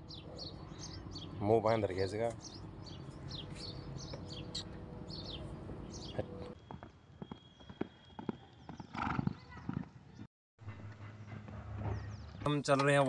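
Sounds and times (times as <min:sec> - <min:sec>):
small birds chirping: 0:00.0 - 0:10.3
horse hooves galloping on sand: 0:06.6 - 0:10.0.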